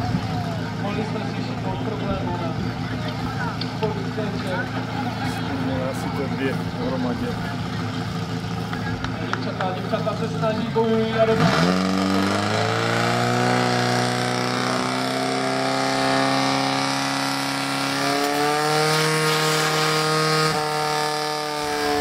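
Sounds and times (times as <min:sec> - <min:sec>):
pump engine running high revs: 0:10.8 - 0:22.0.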